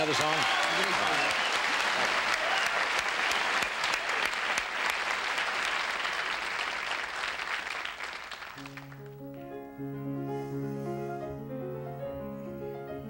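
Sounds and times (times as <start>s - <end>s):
studio audience applauding: 0.0s - 9.4s.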